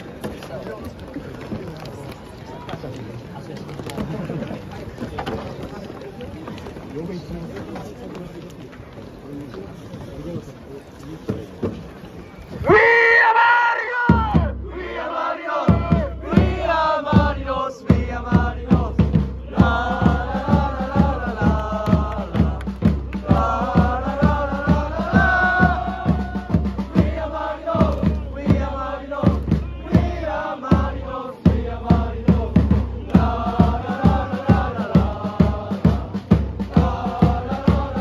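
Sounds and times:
crowd chanting in unison: 12.7 - 38.0
steady drum beat: 14.0 - 38.0.

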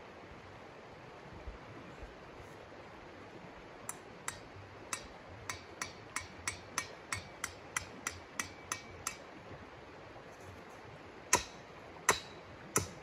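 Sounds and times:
mallet hammering metal stake: 3.9 - 9.3, 11.3 - 13.0.

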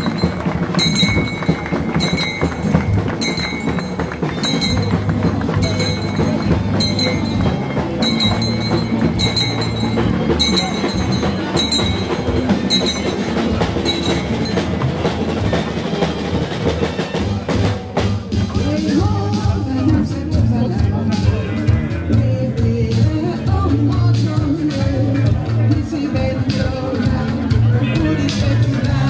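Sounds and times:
bright sharp percussion strike: 0.0 - 15.6
music with driving rhythm and bass: 0.0 - 29.0.

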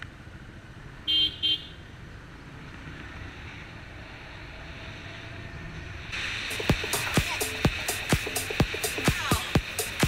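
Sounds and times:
motorcycle horn toots: 1.1 - 1.8.

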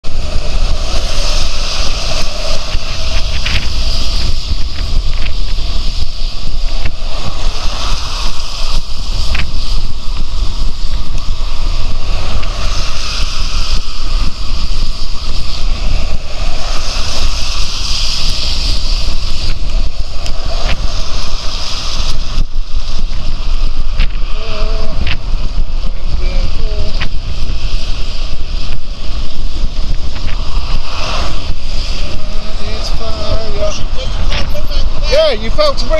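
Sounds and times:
motor traffic passing: 0.0 - 35.9
tyre hiss on wet road: 0.0 - 35.9
wind rush on microphone: 0.0 - 35.9.

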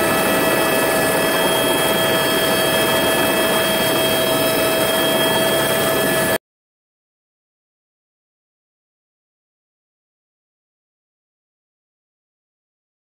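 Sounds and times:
aircraft engine drone: 0.0 - 6.4
high whining tones: 0.0 - 6.4.

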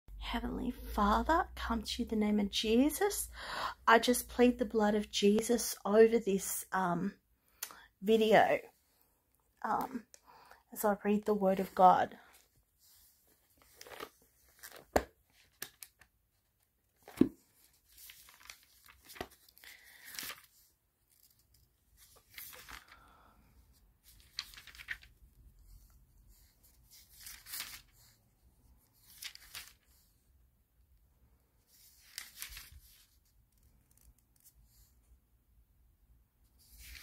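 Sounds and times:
paper pages rustling: 11.6 - 23.1, 23.7 - 30.2, 31.7 - 34.9, 36.5 - 37.0.

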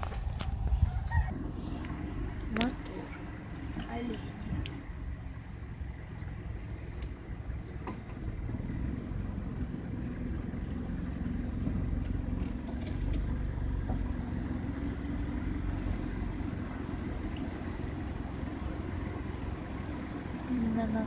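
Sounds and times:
car engine and tyres on gravel: 0.0 - 21.0.

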